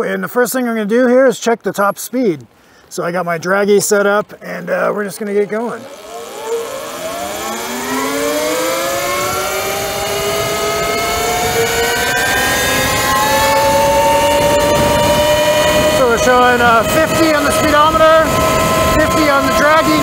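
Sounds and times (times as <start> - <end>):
wind and road noise: 0.0 - 20.0
electric motor whine: 5.6 - 20.0.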